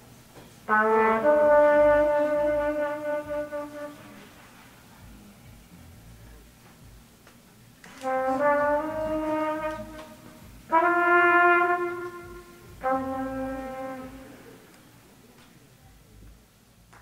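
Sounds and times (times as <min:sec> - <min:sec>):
trumpet long held notes: 0:00.7 - 0:04.6, 0:07.9 - 0:14.8.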